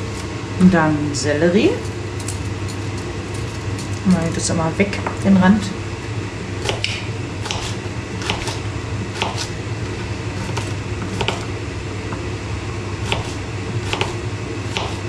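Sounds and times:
steady low hum: 0.0 - 15.0
knife chopping on cutting board: 6.6 - 9.5, 10.5 - 11.4, 13.0 - 15.0.

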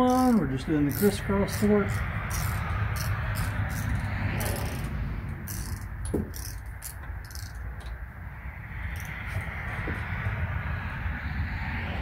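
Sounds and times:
torque wrench ratcheting: 0.0 - 7.9, 8.9 - 9.2.

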